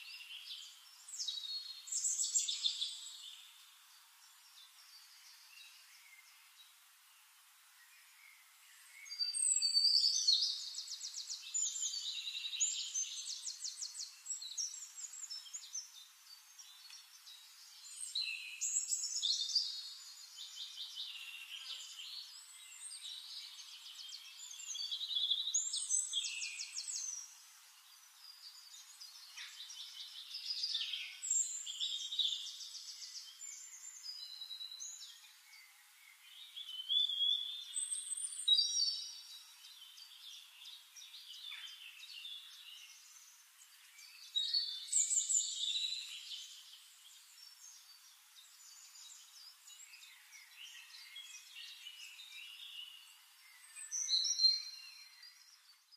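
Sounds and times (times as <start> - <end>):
songbirds trilling and chirping: 0.0 - 55.9.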